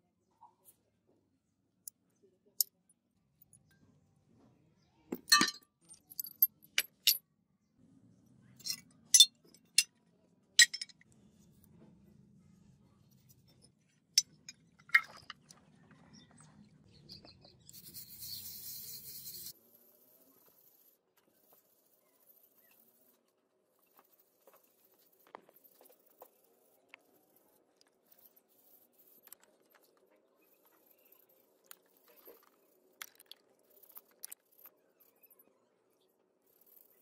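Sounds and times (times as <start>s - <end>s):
metal parts clinking on concrete: 5.1s - 7.2s, 8.6s - 10.0s, 10.6s - 11.0s, 14.2s - 15.5s.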